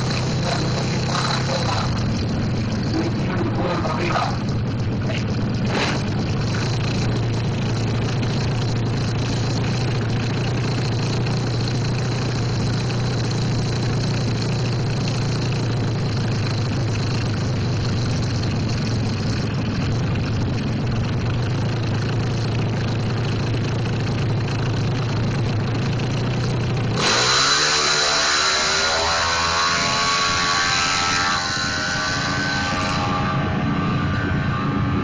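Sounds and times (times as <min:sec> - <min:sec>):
motorcycle racing exhaust: 0:00.0 - 0:35.0.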